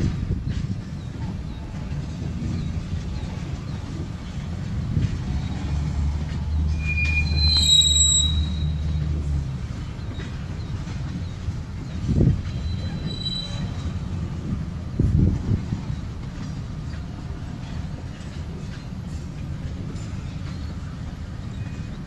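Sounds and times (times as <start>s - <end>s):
train wheels rumbling on rail: 0.0s - 22.0s
high wheel squeal: 5.2s - 14.4s.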